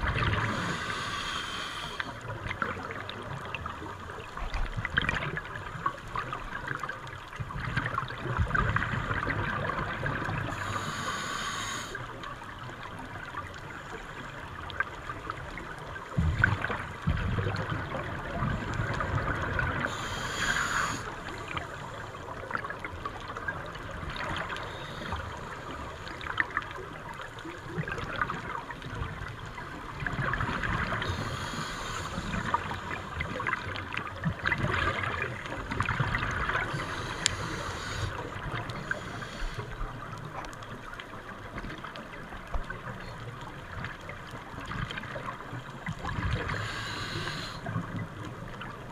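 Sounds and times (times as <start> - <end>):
underwater water noise: 0.0 - 48.9
hissing breaths: 0.5 - 2.2, 10.5 - 12.1, 19.9 - 22.1, 31.1 - 33.2, 36.7 - 39.9, 46.5 - 47.7.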